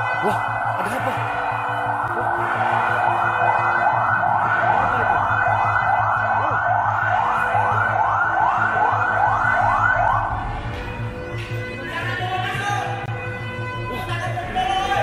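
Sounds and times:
siren whooping: 0.0s - 10.6s.

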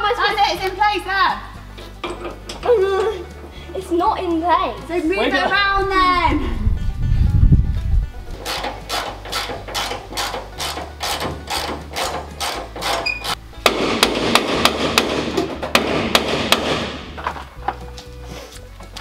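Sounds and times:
music with hard-hitting beat: 13.6s - 17.8s.

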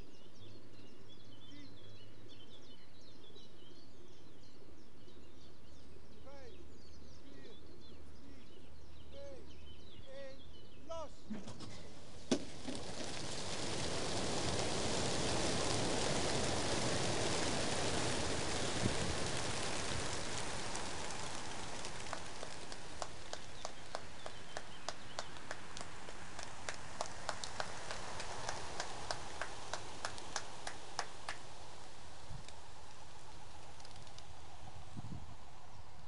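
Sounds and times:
pigeon flock wingbeats: 12.1s - 34.9s.

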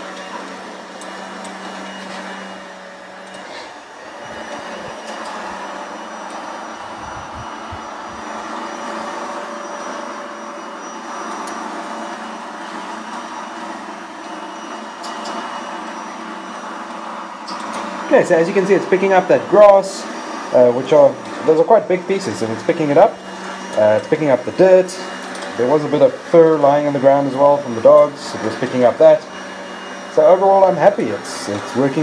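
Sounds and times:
robot vacuum cleaner whirring: 0.0s - 32.0s.

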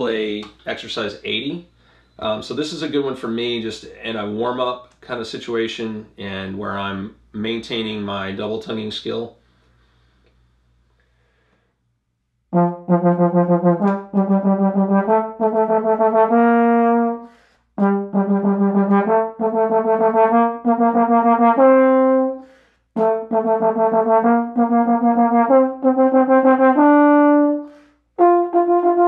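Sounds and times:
breaths: 1.7s - 2.2s, 9.4s - 11.9s, 17.2s - 17.8s, 22.4s - 22.9s, 27.6s - 28.1s
trombone rapid repeated notes: 12.5s - 22.4s, 23.0s - 27.6s, 28.2s - 29.0s.

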